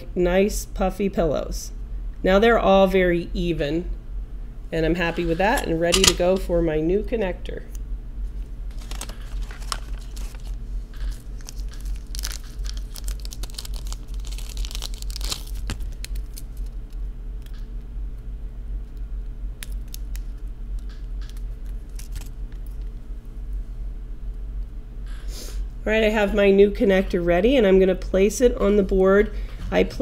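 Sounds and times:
low electrical hum: 0.0s - 30.0s
packaging crinkling and tearing: 8.7s - 17.6s, 19.6s - 22.9s.

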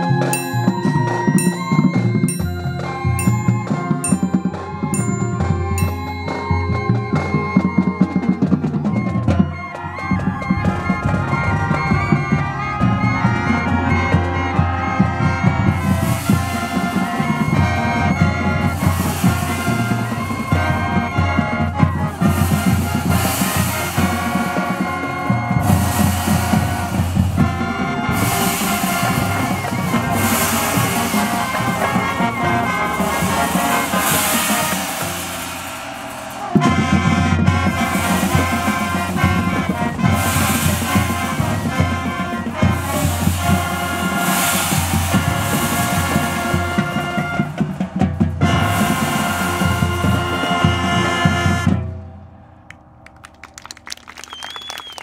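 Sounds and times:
gong: 0.0s - 7.8s, 22.2s - 47.5s
mallet keyboards: 0.0s - 51.5s
marching band playing: 0.0s - 55.0s.

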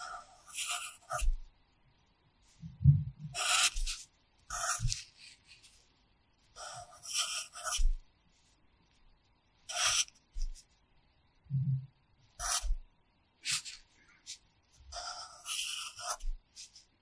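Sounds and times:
pencil scratching on paper: 0.0s - 1.4s, 3.3s - 5.8s, 6.6s - 8.0s, 9.7s - 10.7s, 12.4s - 12.8s, 13.4s - 16.9s.

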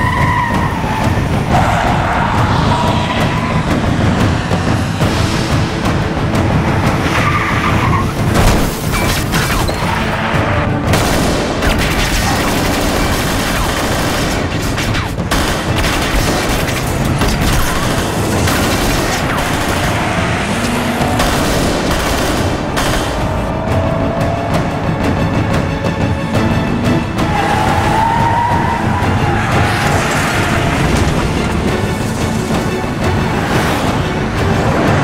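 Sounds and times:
driving action music: 0.0s - 35.0s
rapid gunfire: 10.9s - 23.3s.

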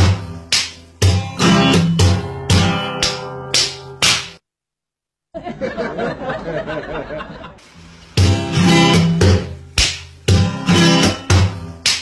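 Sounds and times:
strummed acoustic guitar music: 0.0s - 4.3s, 8.1s - 12.0s.

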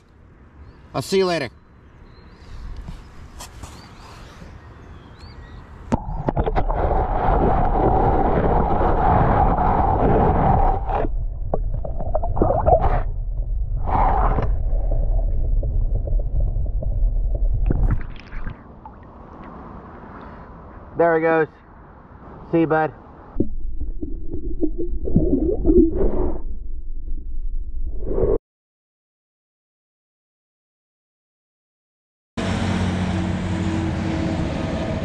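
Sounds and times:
muffled underwater rumbling and gurgling: 5.9s - 18.6s, 23.4s - 28.4s
water sloshing: 14.3s - 19.7s.

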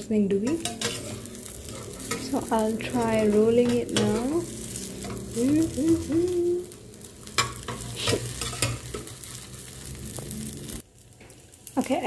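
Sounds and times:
omelette sizzling: 0.0s - 12.0s
metal spoon scraping frying pan: 0.3s - 9.9s.

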